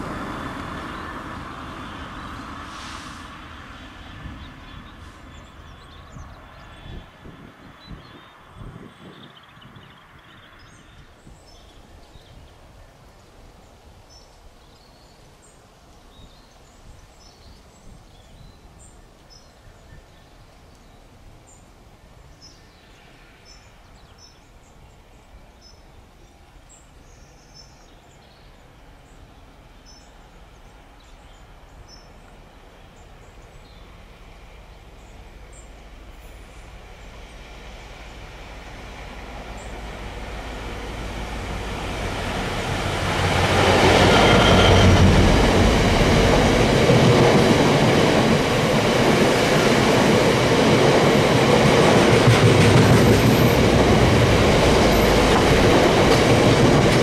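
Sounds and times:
diesel train rumble: 0.0 - 9.1, 29.5 - 57.0.

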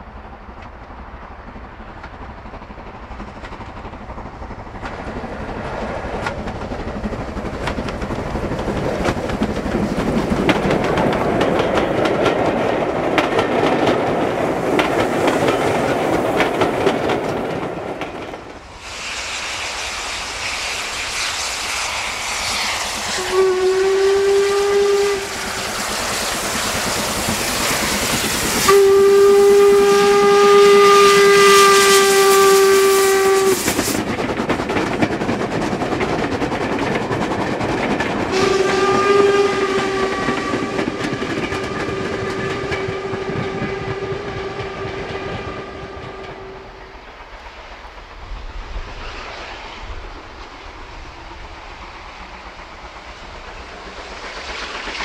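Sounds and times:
steam locomotive exhaust: 0.0 - 55.0
coaches clattering over rail joints: 6.1 - 18.6
steam whistle blast: 18.8 - 26.3, 28.6 - 34.0, 38.3 - 46.9.

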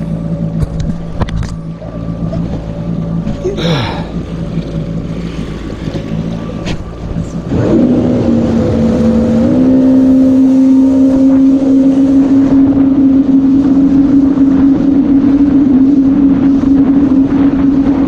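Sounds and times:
jet ski engine revving: 0.0 - 18.0.

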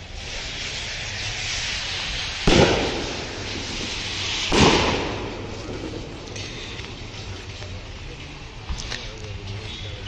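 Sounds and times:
firecracker bangs: 0.0 - 7.4
steady background hiss: 0.0 - 10.0.

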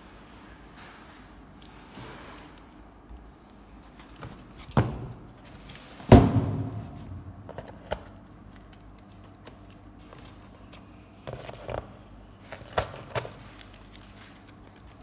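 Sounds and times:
cardboard box thumps: 6.1 - 7.0.

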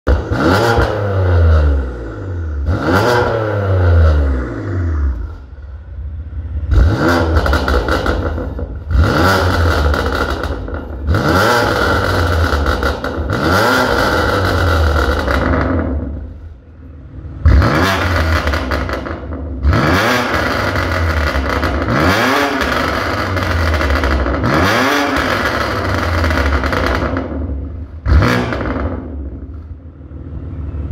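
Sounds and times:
car engine revving: 0.1 - 30.9
exhaust crackling and popping: 6.7 - 16.5, 17.4 - 29.7.

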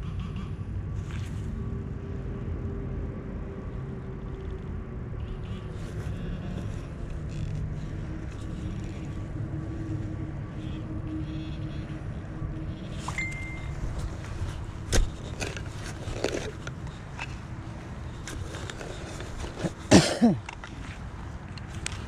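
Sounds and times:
low engine-like rumble: 0.0 - 22.0
faint hum: 3.2 - 18.8.

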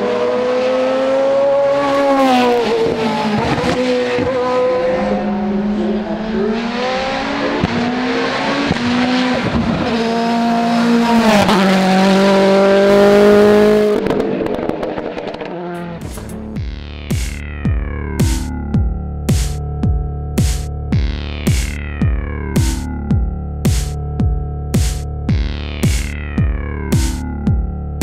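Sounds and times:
race car engines accelerating: 0.0 - 16.6.

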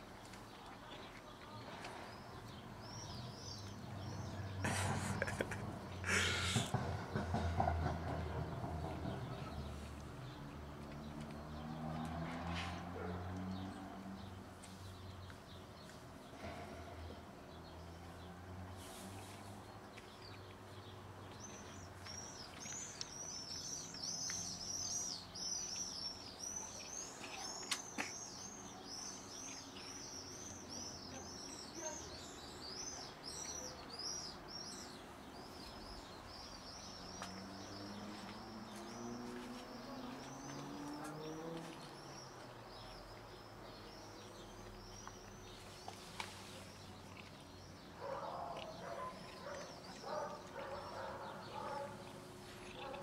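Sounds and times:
small birds chirping: 0.0 - 53.0.

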